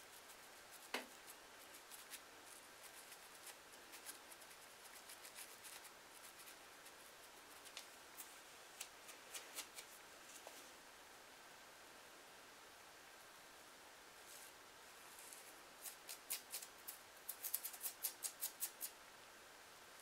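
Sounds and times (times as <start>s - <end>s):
comb scratching scalp: 0.0s - 10.5s, 15.1s - 18.9s.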